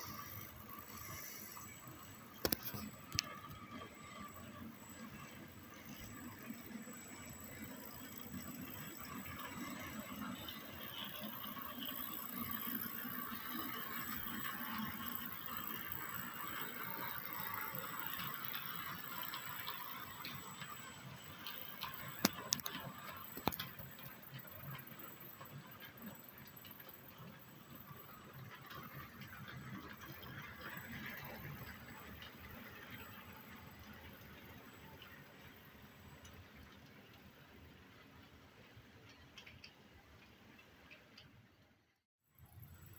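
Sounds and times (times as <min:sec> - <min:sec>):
model train rolling on track: 0:00.0 - 0:42.9.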